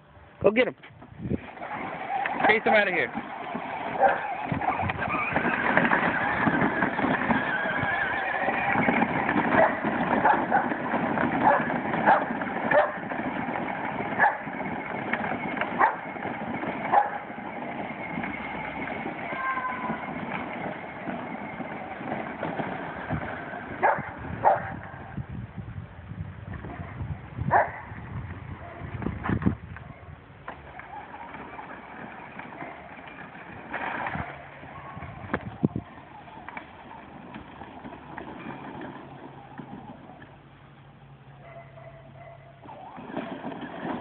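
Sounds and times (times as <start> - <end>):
low outdoor rumble: 0.0 - 44.0
plastic wheels crunching on gravel: 0.4 - 44.0
electric motor whine: 1.2 - 24.3
dog barking: 4.0 - 4.3, 11.4 - 13.0, 14.2 - 14.4, 15.8 - 16.0, 23.8 - 24.8, 27.5 - 27.8, 34.7 - 35.8, 41.4 - 42.7.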